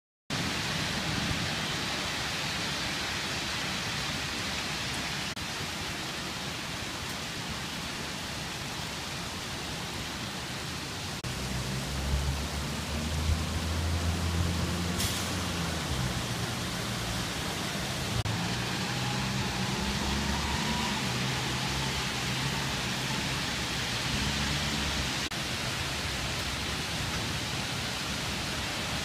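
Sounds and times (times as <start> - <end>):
hard rain hissing: 0.3 - 29.0
low rumble of traffic: 9.4 - 29.0.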